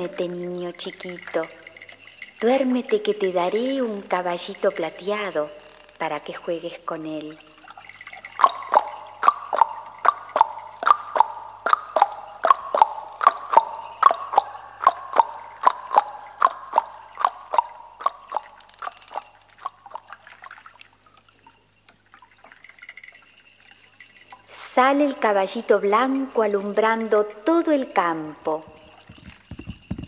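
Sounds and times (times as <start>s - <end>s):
clicks imitating hoofbeats: 0.0s - 20.3s.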